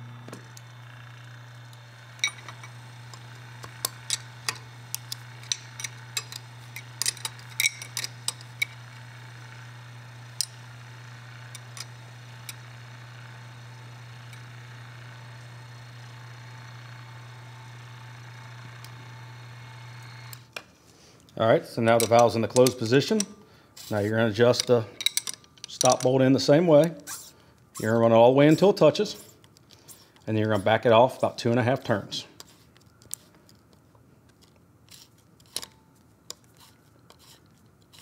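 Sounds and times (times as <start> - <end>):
valve actuator motor humming: 0.0 - 20.5.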